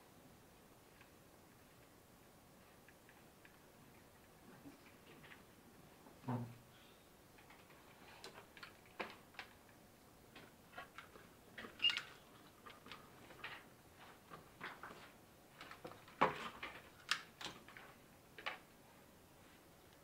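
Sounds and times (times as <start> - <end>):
hands handling wires and cardboard: 7.4 - 18.7.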